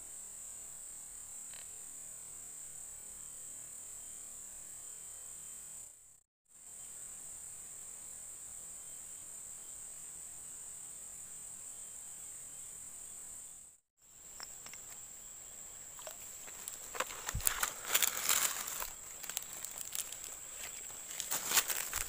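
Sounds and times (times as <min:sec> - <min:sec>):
insects droning: 0:00.0 - 0:22.0
rustling: 0:15.8 - 0:22.0.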